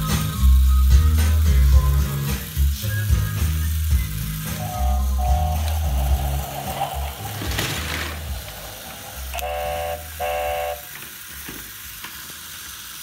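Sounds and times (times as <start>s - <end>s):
toy train electronic horn toots: 4.6s - 8.1s, 9.0s - 11.2s
low hum: 4.6s - 10.8s.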